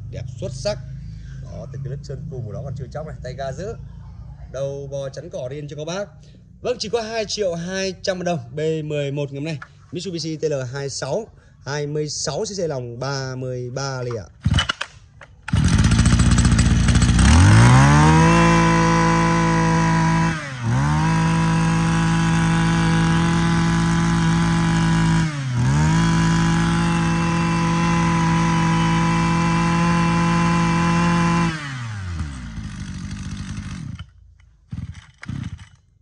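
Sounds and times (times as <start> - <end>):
brush cutter engine revving: 14.3 - 36.0.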